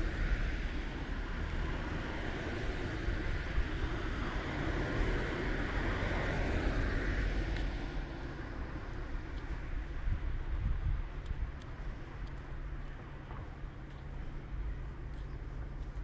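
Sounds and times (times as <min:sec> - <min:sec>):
road vehicle passing: 0:00.0 - 0:09.9.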